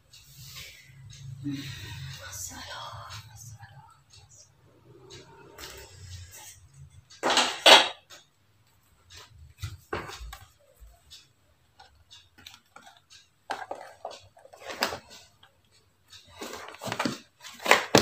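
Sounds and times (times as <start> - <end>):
kitchenware clattering: 7.2 - 8.2.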